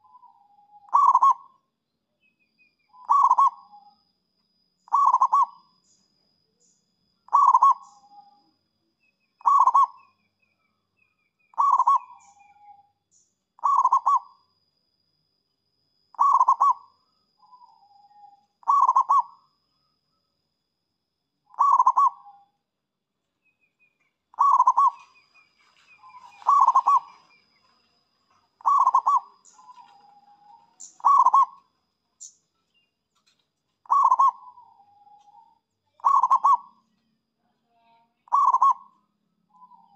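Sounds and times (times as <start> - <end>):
dove cooing: 0.0 - 1.5, 3.0 - 3.8, 4.9 - 5.6, 7.3 - 8.2, 9.4 - 10.0, 11.6 - 12.7, 13.6 - 14.3, 16.2 - 16.9, 17.5 - 19.4, 21.5 - 22.4, 24.4 - 25.2, 25.9 - 27.7, 28.6 - 31.7, 33.8 - 36.8, 38.3 - 38.9.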